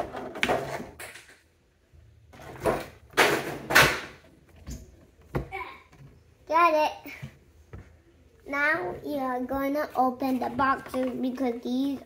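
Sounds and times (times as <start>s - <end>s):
plastic packaging scraping and knocking: 9.9s - 12.0s.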